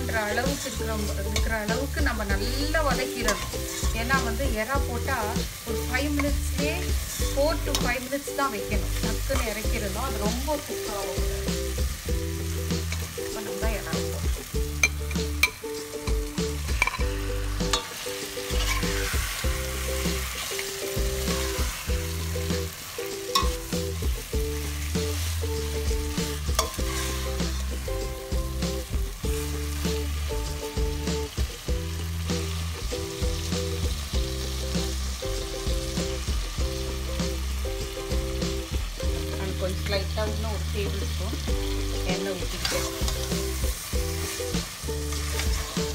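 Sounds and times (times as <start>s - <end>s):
background music with bass line: 0.0s - 45.9s
prawns sizzling in a pot: 0.0s - 45.9s
steel spoon scraping a pot: 3.3s - 3.9s, 16.7s - 17.1s, 17.7s - 19.4s.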